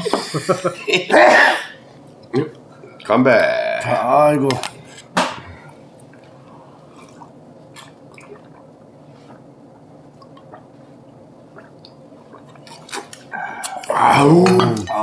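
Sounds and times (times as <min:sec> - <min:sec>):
wet swallowing: 0:06.0 - 0:14.9.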